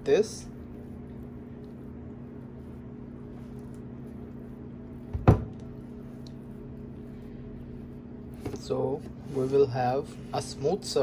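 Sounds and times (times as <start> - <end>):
steady low hum: 0.0 - 11.0
loud dull thump: 5.1 - 5.6.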